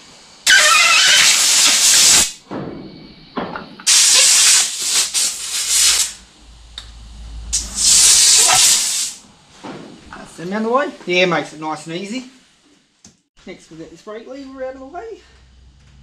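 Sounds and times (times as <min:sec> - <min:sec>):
compressed air hissing from nozzle: 0:00.4 - 0:02.4, 0:03.9 - 0:06.2, 0:07.6 - 0:09.2.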